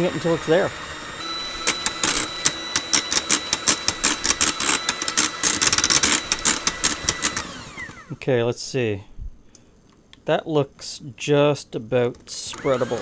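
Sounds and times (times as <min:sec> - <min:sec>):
electric hand mixer running: 0:00.0 - 0:08.2, 0:12.6 - 0:13.0.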